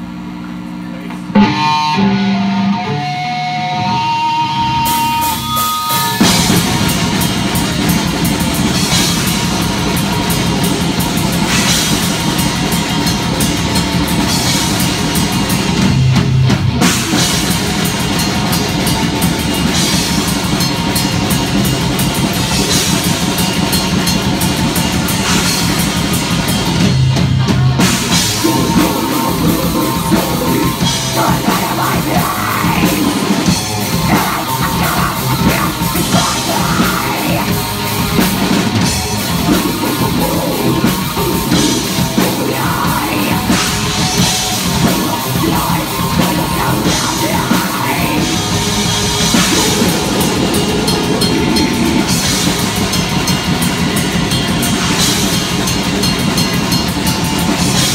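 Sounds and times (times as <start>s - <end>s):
electric guitar picking notes: 1.3s - 7.5s, 25.2s - 57.9s
metal band playing: 1.3s - 57.9s
person singing: 28.3s - 37.7s, 39.4s - 52.3s.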